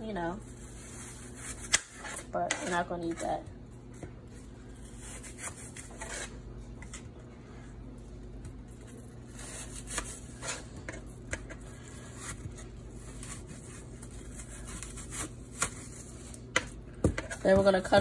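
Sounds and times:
knife cutting apple on plastic board: 0:09.4 - 0:17.8.

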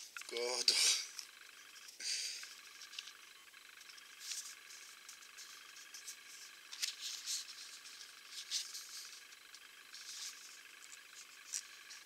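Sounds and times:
paper and card rustling: 0:04.0 - 0:12.0.

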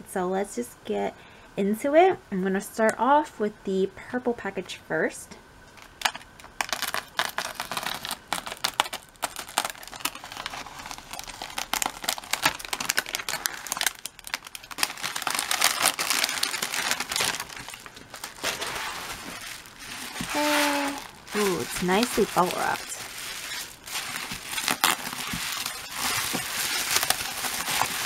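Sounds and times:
bubble wrap crinkling: 0:05.8 - 0:28.0
plastic mailer tearing: 0:06.0 - 0:28.0.

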